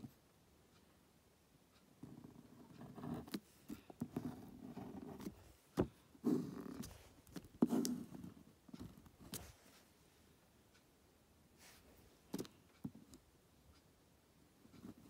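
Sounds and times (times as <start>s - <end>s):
pen scratching on paper: 2.0s - 9.6s.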